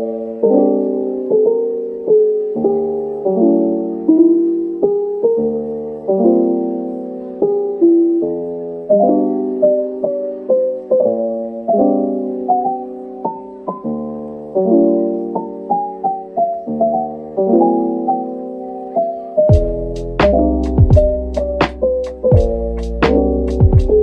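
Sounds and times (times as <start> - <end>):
slow piano music: 0.0 - 24.0.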